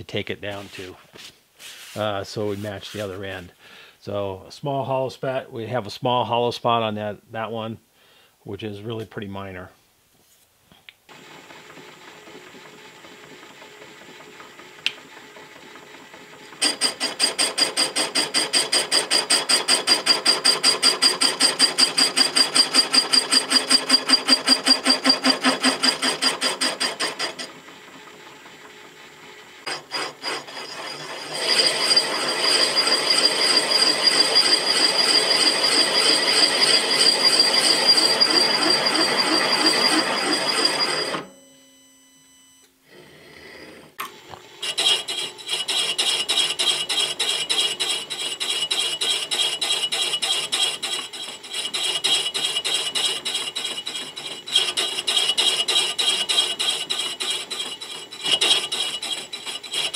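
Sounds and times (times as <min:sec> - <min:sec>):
boring tool chattering: 0:16.6 - 0:27.5, 0:29.7 - 0:41.2, 0:44.6 - 0:59.9
milling machine humming: 0:18.7 - 0:41.2
steady high whine: 0:29.7 - 0:42.7.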